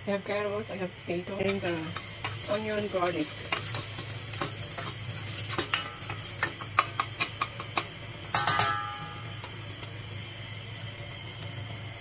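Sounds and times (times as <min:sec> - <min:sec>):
ringing knocks on pan: 0:08.4 - 0:09.2.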